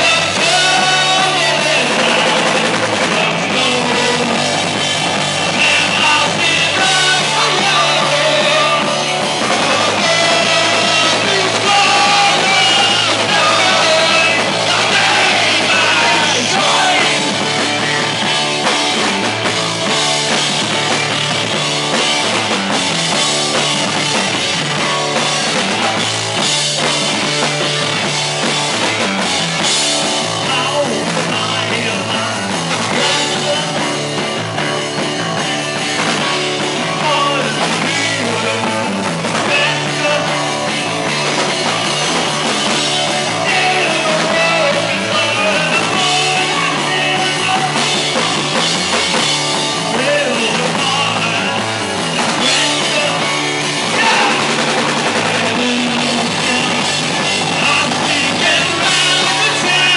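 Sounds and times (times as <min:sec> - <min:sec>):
person singing: 0:00.0 - 0:04.8, 0:05.4 - 0:18.0, 0:30.4 - 0:34.3, 0:36.4 - 0:41.4, 0:43.1 - 0:48.4, 0:49.8 - 0:59.9
live rock band playing: 0:00.0 - 0:59.9.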